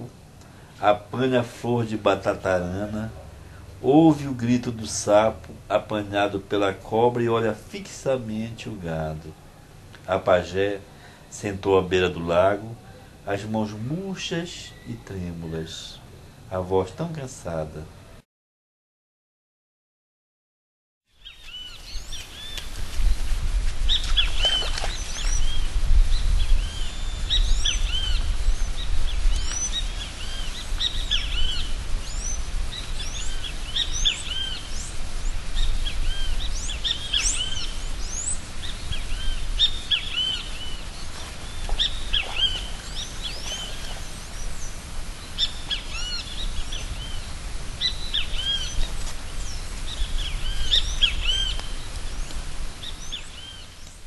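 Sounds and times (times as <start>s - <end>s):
birds chirping and whistling: 23.9s - 53.9s.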